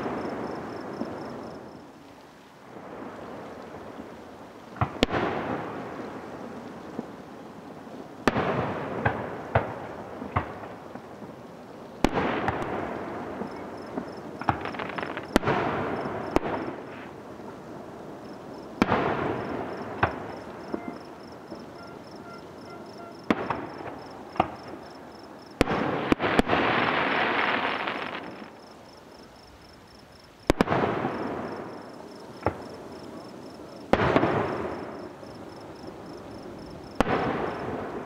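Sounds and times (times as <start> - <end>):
fireworks rumble and crackle: 0.0 - 38.0
fireworks bangs: 8.2 - 11.4, 12.0 - 17.3, 18.2 - 28.7, 30.4 - 38.0.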